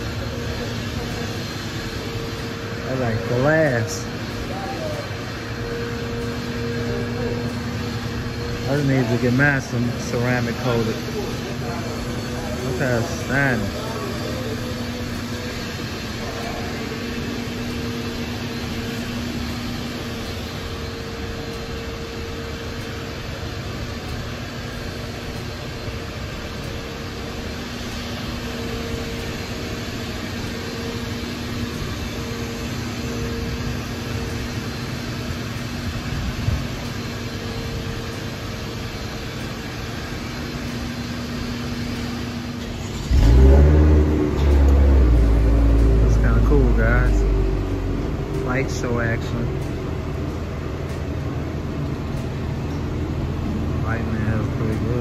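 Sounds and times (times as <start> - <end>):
steady mechanical hum: 0.0 - 55.0.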